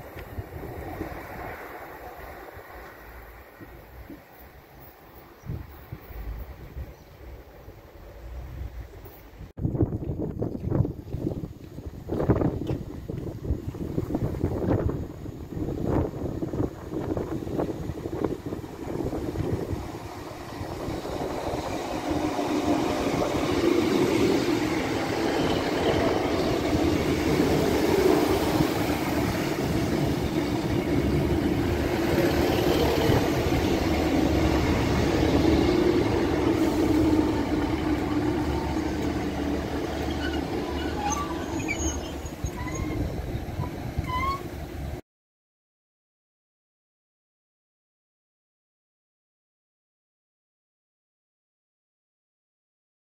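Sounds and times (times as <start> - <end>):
train engine and wheels rumbling: 0.0 - 45.0
train brake squeals: 39.9 - 44.6.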